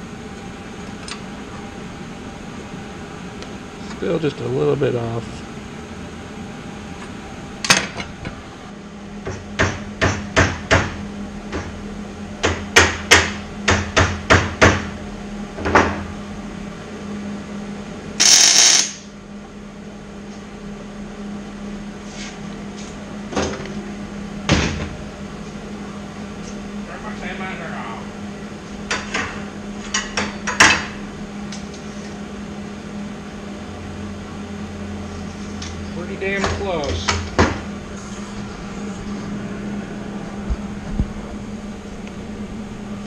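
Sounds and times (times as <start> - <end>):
welding burst: 18.2 - 19.1.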